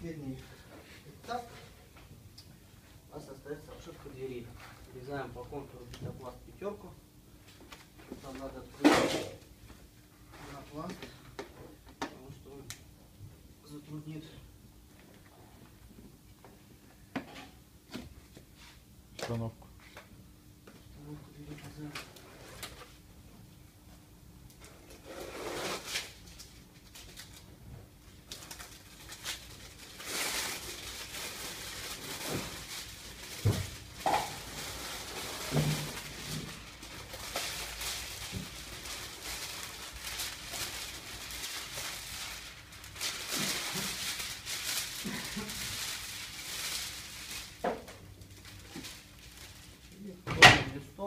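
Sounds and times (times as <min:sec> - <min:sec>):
foam and foil sheets crinkling: 0:25.0 - 0:50.2.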